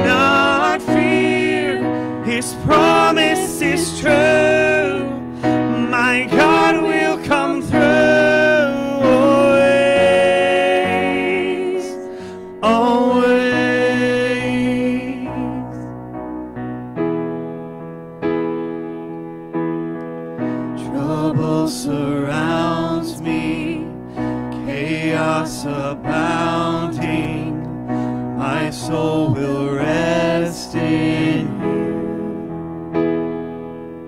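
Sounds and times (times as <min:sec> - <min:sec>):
man and woman singing: 0:00.0 - 0:15.8, 0:20.8 - 0:24.0, 0:24.6 - 0:27.7, 0:28.3 - 0:32.5
keyboard accompaniment: 0:00.0 - 0:34.0.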